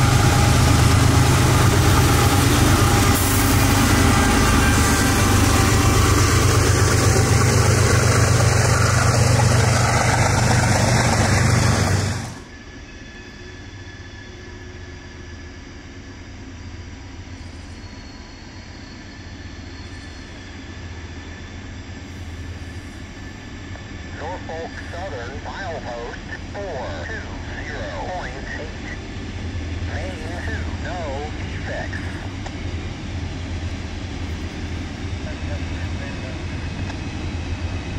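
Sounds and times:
freight train rumbling and rattling: 0.0 - 37.9.

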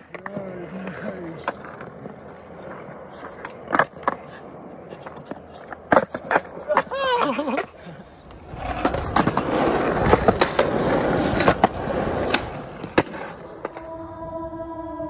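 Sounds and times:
skateboard wheels clacking on joints: 0.0 - 13.9
skateboard wheels rolling on concrete: 0.0 - 14.1
steady humming tone: 12.5 - 15.0.

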